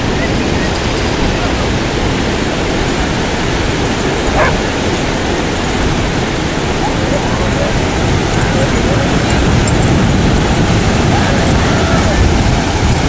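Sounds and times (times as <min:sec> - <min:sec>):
ocean surf rushing: 0:00.0 - 0:13.0
wind: 0:00.0 - 0:13.0
dog yip: 0:04.3 - 0:04.7.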